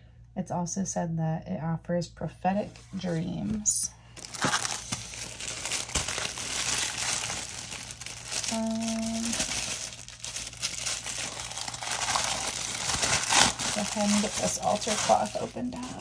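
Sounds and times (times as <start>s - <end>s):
paper packaging rustling: 4.2s - 16.0s.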